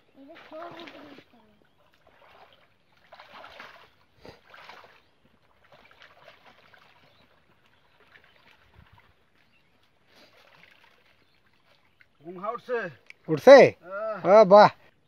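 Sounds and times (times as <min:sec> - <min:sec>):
net scooping pond water: 0:00.0 - 0:13.0
legs wading in water: 0:00.0 - 0:13.3.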